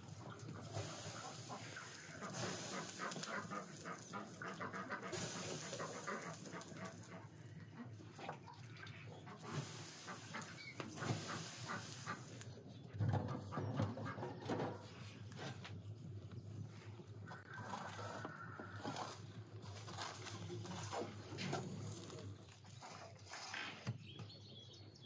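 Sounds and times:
wood fire crackling: 0.0s - 12.9s, 17.0s - 22.8s
water hissing on hot walls: 0.0s - 13.8s, 17.3s - 23.6s.

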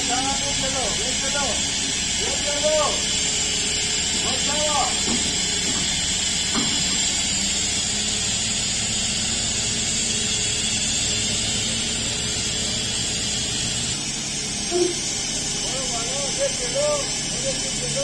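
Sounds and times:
compressed air hissing: 0.0s - 8.2s
forklift engine idling: 0.0s - 18.0s.

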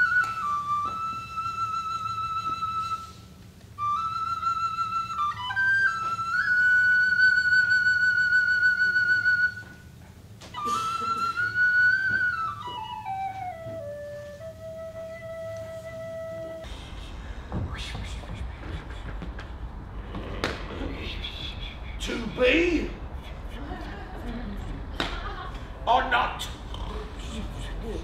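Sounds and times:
flute playing slow melody: 0.0s - 17.0s.

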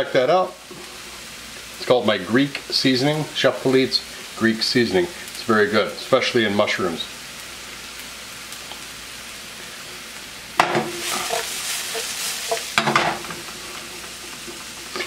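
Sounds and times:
mushrooms sizzling in pan: 0.0s - 15.0s
pan knocking on burner grate: 10.6s - 13.5s.

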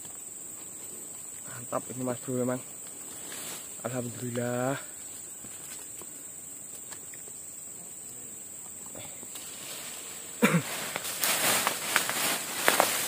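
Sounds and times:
high insect drone: 0.0s - 13.0s
man clearing throat: 10.4s - 10.8s.

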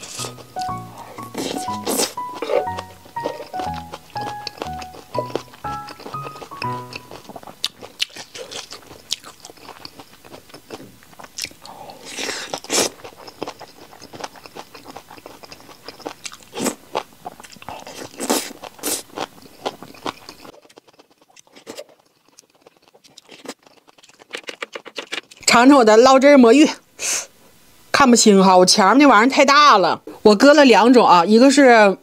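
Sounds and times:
slurping: 0.0s - 4.6s
wet chewing with crunching: 0.0s - 25.5s.

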